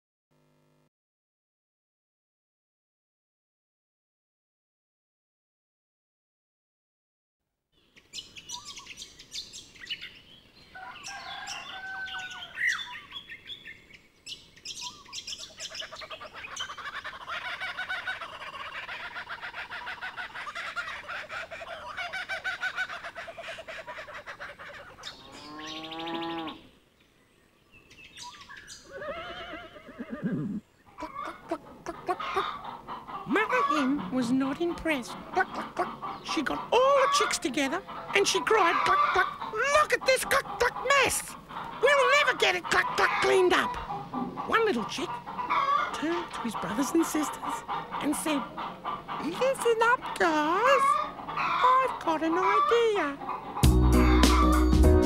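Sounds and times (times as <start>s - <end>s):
birds chirping and squawking: 7.8s - 54.9s
bird call rising and falling: 8.0s - 13.8s, 27.8s - 31.3s.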